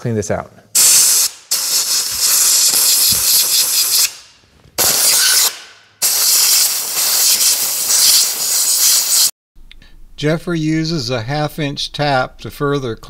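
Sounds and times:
air blow gun hissing: 0.8s - 9.3s.

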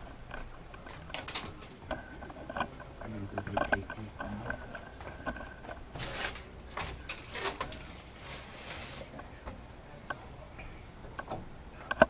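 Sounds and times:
rustling: 6.0s - 9.3s.

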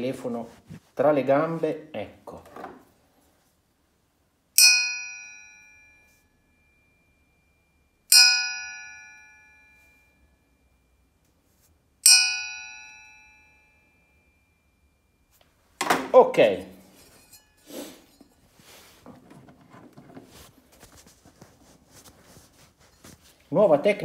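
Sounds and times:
metal pulley ringing when struck: 4.6s - 6.0s, 8.1s - 9.8s, 12.0s - 14.6s.

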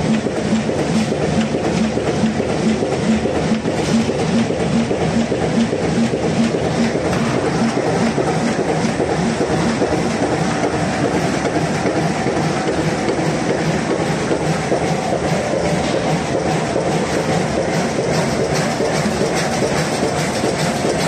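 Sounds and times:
machine rhythmic mechanical clatter: 0.0s - 21.0s.

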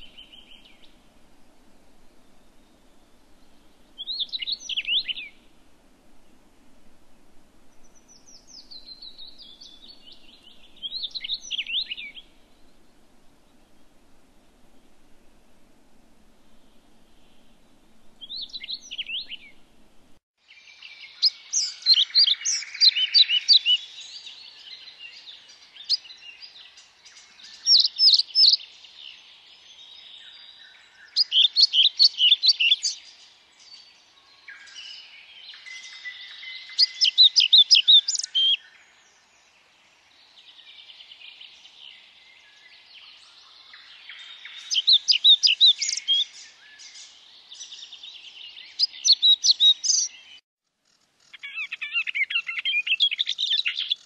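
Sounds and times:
background bird chatter: 20.7s - 54.0s.

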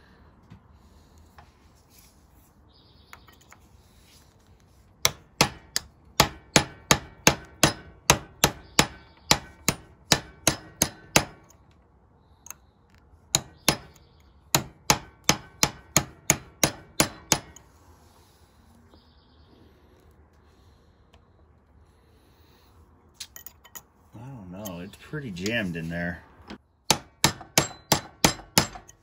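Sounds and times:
hatchet striking steel punch: 5.0s - 11.5s, 13.3s - 17.6s, 26.5s - 29.0s.

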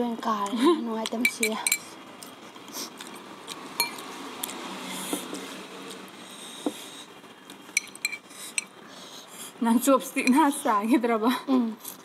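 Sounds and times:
forks clinking against glass bowls: 1.2s - 1.8s, 7.8s - 8.7s
soft chewing: 2.2s - 8.7s.

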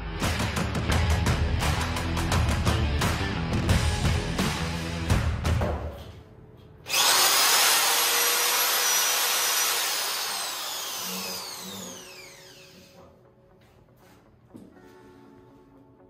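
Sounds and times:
power drill whining: 6.9s - 13.0s.

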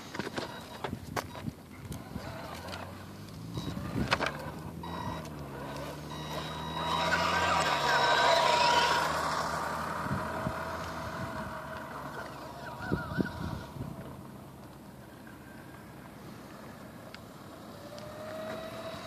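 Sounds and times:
electric motor and gears whining: 0.0s - 19.0s.

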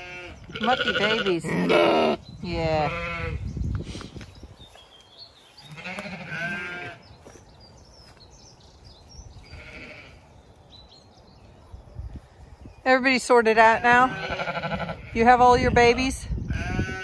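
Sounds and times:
sheep bleating: 0.0s - 2.2s, 5.7s - 7.0s, 9.5s - 10.2s, 13.7s - 15.3s.

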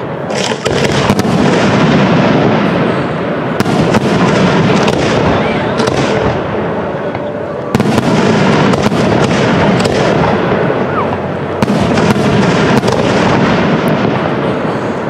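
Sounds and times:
fireworks shells bursting: 0.0s - 2.0s
sharp bangs: 0.0s - 14.9s
loud rumble and crackle: 0.0s - 15.0s.

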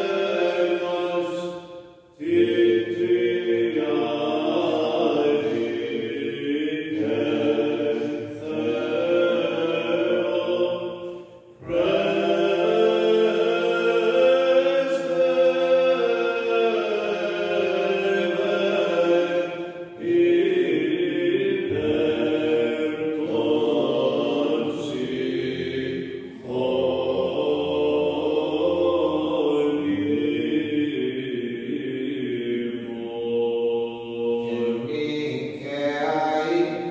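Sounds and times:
man singing chant: 0.0s - 1.6s, 11.6s - 25.8s, 26.4s - 36.9s.

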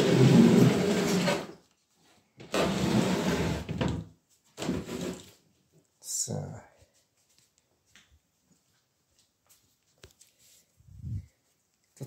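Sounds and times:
wooden crates scraping on tile floor: 0.0s - 1.7s, 2.4s - 5.4s.

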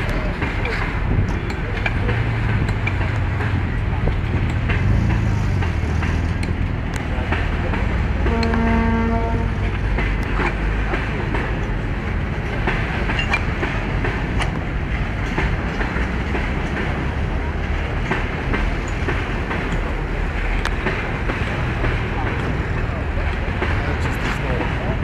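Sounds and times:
railway low rumble: 0.0s - 25.0s.

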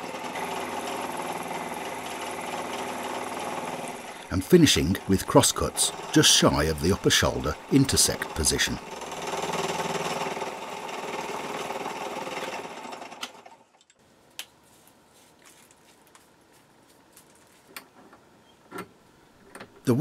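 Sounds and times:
milling machine cutting aluminium: 4.9s - 12.8s.

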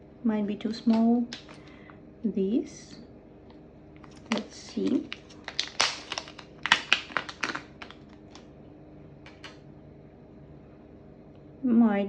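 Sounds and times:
plastic packet crinkling: 0.7s - 1.7s, 4.0s - 8.5s, 9.3s - 9.6s.

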